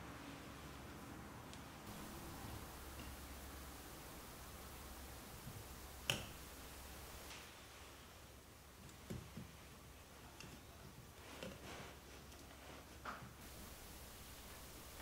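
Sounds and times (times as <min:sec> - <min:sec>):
branch cutters snipping: 0:01.9 - 0:07.4.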